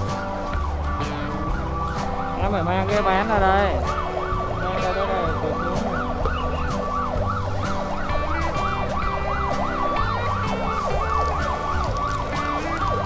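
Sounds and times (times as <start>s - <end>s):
siren-like warbling tone: 3.0s - 13.0s.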